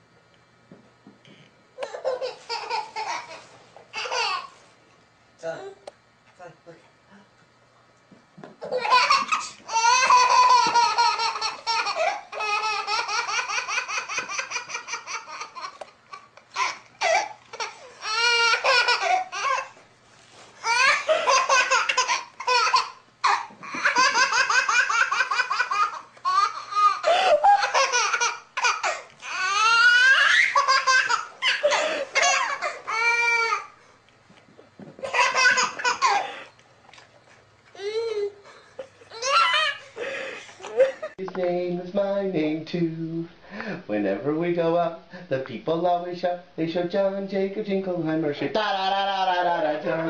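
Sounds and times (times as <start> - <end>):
baby laughing: 1.8 - 4.6, 8.6 - 19.8, 20.6 - 33.8, 35.0 - 36.5, 37.8 - 41.2.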